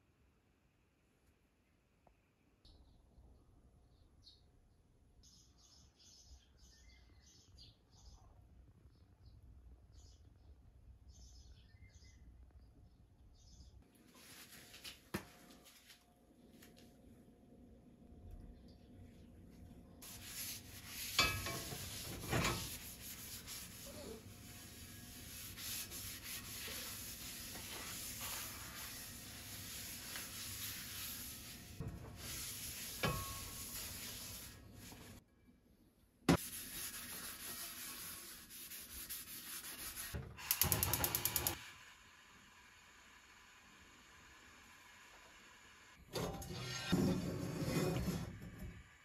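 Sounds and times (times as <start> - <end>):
paper towel scrubbing skillet: 20.0 - 35.2, 36.4 - 40.2
gas burner igniter clicking: 40.4 - 41.6.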